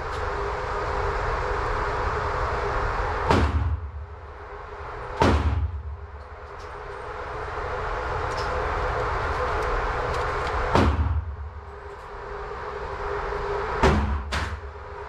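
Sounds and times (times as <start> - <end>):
motorized target carrier running: 0.0 - 15.0
gunshots indoors: 3.2 - 4.0, 5.1 - 5.9, 10.4 - 11.4, 13.8 - 14.7.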